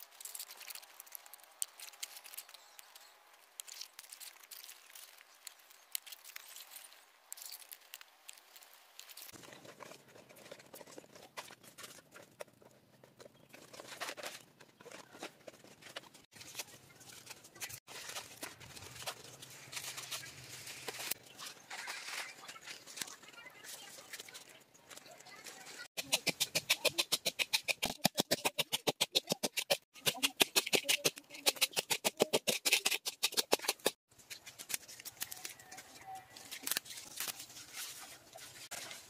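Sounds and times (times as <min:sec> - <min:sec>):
small sharp crackles and clicks: 0:00.0 - 0:12.3
leaves rustling and crinkling: 0:00.0 - 0:12.7, 0:13.5 - 0:26.4, 0:33.9 - 0:39.0.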